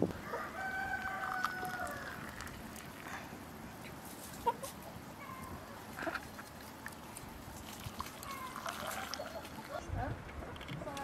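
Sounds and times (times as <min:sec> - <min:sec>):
rooster crowing: 0:00.2 - 0:02.3.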